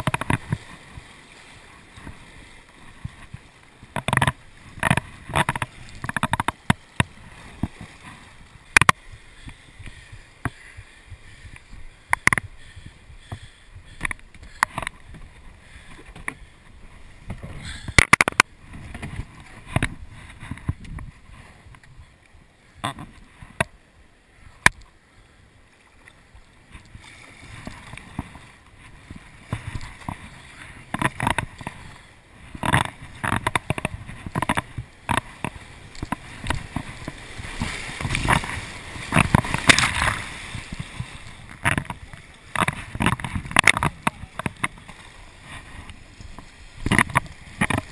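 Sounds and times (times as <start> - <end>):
paddle knocking against kayak: 0.0 - 1.1, 3.0 - 8.1, 8.7 - 16.5, 27.6 - 47.9
kayak paddle splashing: 0.0 - 47.9
rushing water: 0.0 - 47.9.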